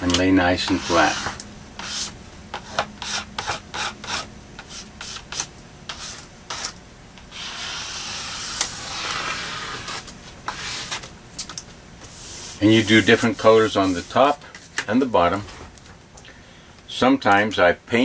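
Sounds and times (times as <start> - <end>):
plastic card scraping over tape: 5.2 - 11.1.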